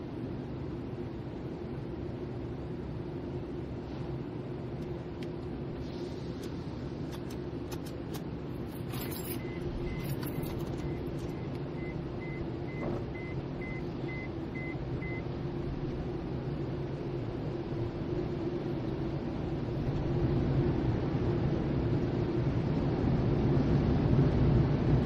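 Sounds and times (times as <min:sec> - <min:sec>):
car wash machinery rumble: 0:00.0 - 0:25.0
high repeating beep: 0:09.1 - 0:15.2.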